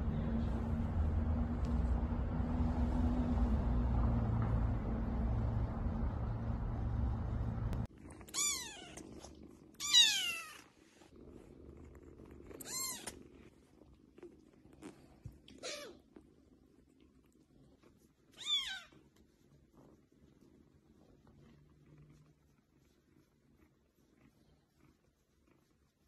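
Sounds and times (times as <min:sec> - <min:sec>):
cat purring: 0:00.0 - 0:26.0
kittens mewing: 0:08.2 - 0:09.0, 0:12.6 - 0:13.2.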